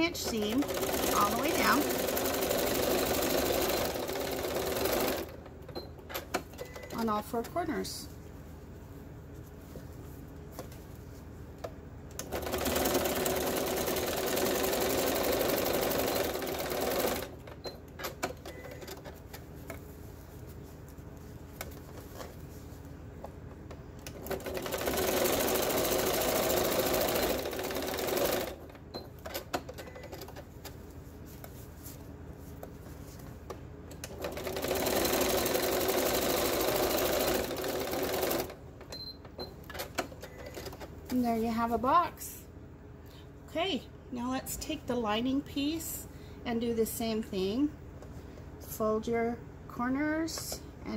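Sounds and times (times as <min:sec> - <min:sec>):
electric sewing machine stitching: 0:00.0 - 0:05.4, 0:12.2 - 0:17.5, 0:24.0 - 0:28.8, 0:34.0 - 0:38.6.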